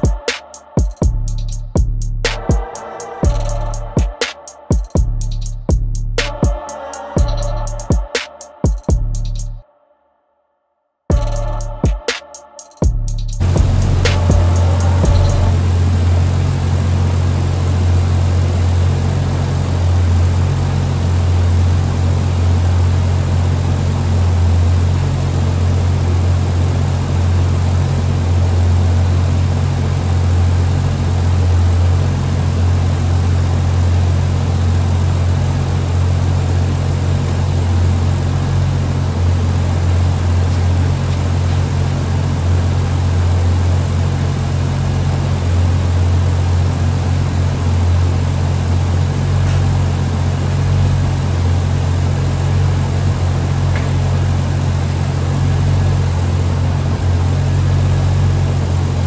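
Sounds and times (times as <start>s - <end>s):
car engine droning: 12.9s - 59.0s.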